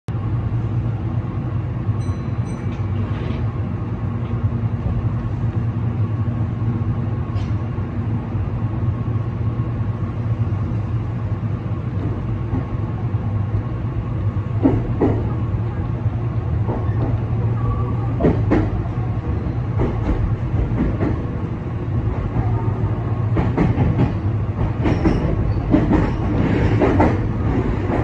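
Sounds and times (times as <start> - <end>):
electric train rumble and hum: 0.1 - 28.0.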